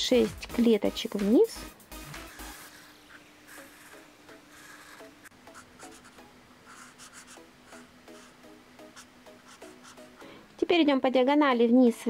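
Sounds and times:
marker rubbing on paper: 2.1 - 10.1.

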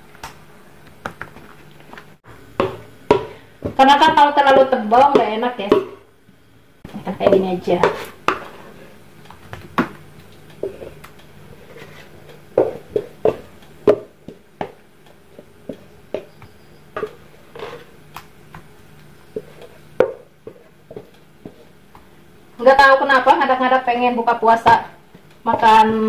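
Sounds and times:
faint steady hum: 0.0 - 26.0
wooden spatula scraping a pot: 7.0 - 9.0, 10.6 - 14.0, 15.2 - 18.0, 19.3 - 21.8.

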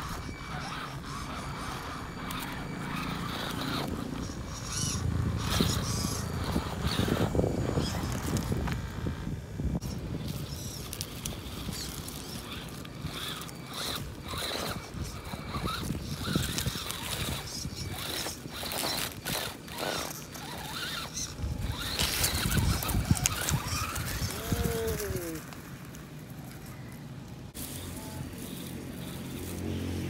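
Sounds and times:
rc car motor whining: 0.0 - 30.0
tyres crackling over leaves: 10.1 - 30.0.

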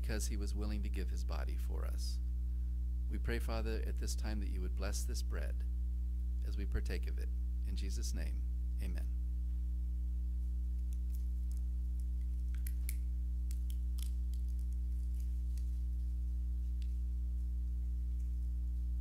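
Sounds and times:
electrical mains hum: 0.0 - 19.0
faint clicks and crackles: 10.7 - 17.0.

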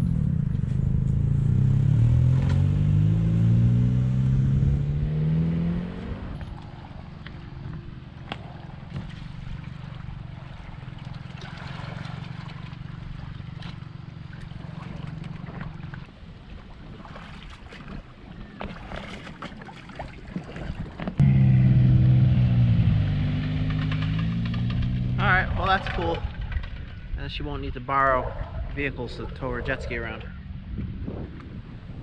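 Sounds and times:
jet ski engine: 0.0 - 17.4, 18.1 - 27.2
water lapping: 6.4 - 21.2.

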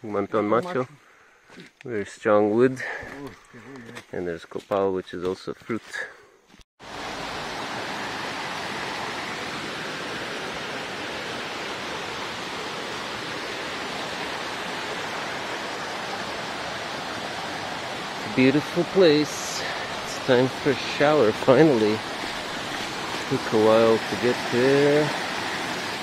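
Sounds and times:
waterfall rushing: 6.8 - 26.0.

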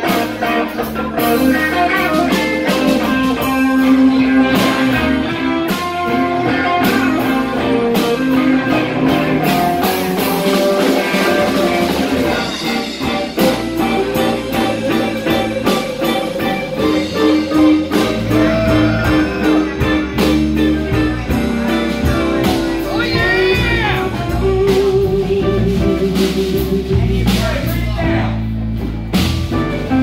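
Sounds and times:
blues-rock band playing: 0.0 - 30.0
bending sliding guitar note: 1.3 - 24.7.

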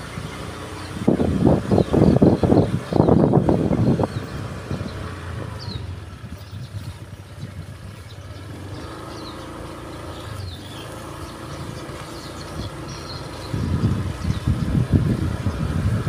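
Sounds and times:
vehicle engine humming: 0.0 - 16.0.

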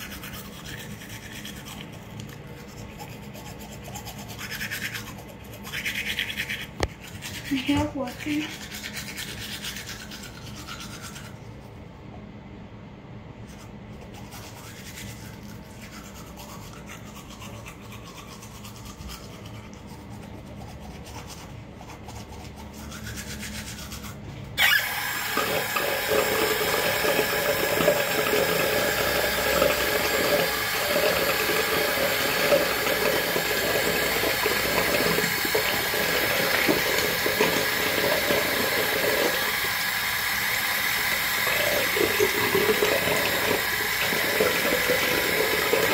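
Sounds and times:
toothbrush scrubbing teeth: 0.0 - 11.8, 13.4 - 45.9
water running into sink: 24.6 - 45.9.

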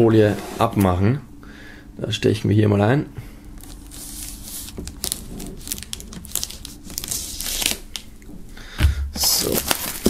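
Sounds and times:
plastic film crinkling: 3.6 - 8.2, 9.2 - 10.0.

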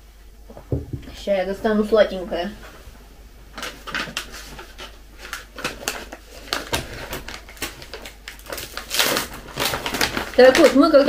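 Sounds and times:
plastic snack packet crinkling: 3.6 - 11.0.

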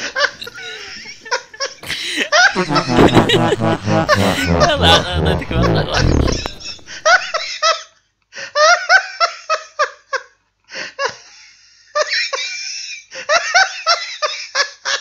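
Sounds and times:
high-pitched laughter: 1.9 - 7.4.

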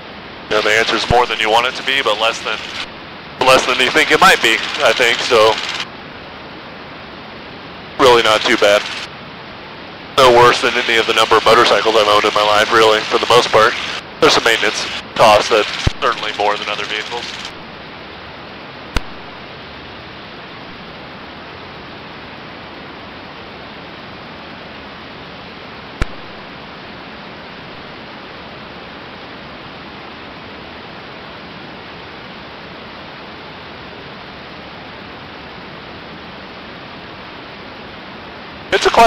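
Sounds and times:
aircraft cockpit hiss: 0.4 - 5.9, 7.9 - 9.1, 10.2 - 17.7, 38.7 - 39.0
sharp click: 18.9 - 19.2, 26.0 - 26.3.

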